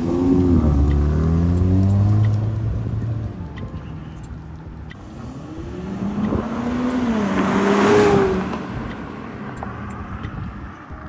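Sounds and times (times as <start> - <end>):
car accelerating past: 0.0 - 3.2, 5.0 - 10.8.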